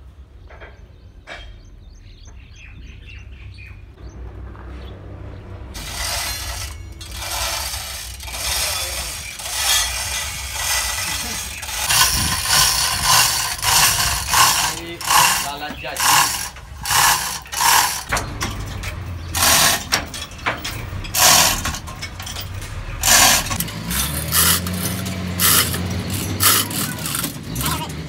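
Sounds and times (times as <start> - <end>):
chain hoist ratcheting: 5.8 - 28.0.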